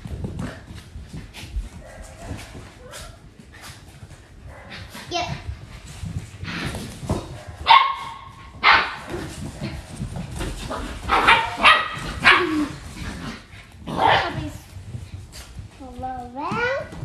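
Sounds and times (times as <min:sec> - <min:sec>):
puppies barking and yipping: 0:07.1 - 0:13.0.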